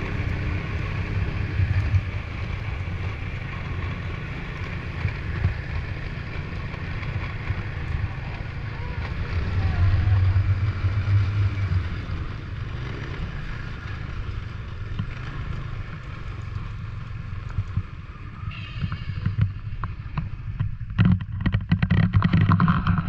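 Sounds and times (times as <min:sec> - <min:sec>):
snowmobile engine running: 0:00.0 - 0:13.6
rapid knocks and rattles: 0:19.2 - 0:23.0.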